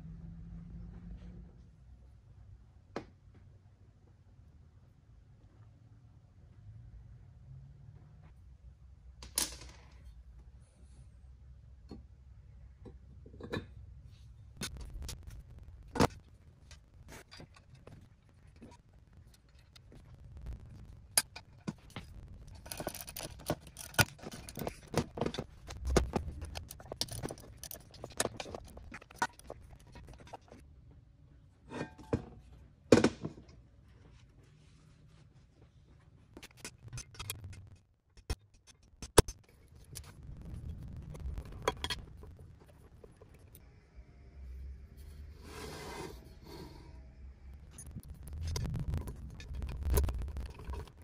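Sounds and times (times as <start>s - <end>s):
metal parts clinking and clattering: 21.2s - 30.6s.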